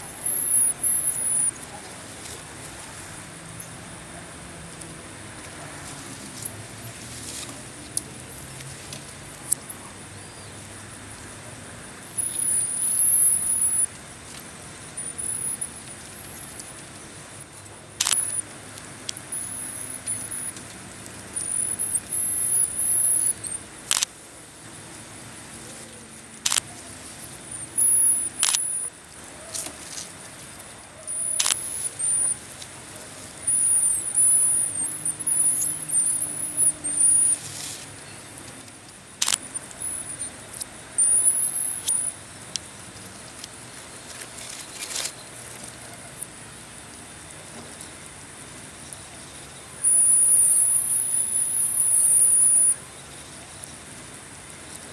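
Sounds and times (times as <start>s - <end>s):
marmosets chirping: 0.0s - 2.0s, 12.0s - 13.9s, 14.9s - 16.7s, 18.0s - 18.5s, 19.2s - 20.6s, 21.3s - 24.0s, 27.2s - 28.9s, 31.1s - 32.4s, 33.3s - 37.5s, 39.2s - 42.2s, 49.7s - 52.8s
sharp clicks: 17.5s - 24.1s, 26.4s - 26.7s, 27.8s - 28.9s, 31.1s - 32.7s, 38.4s - 42.8s.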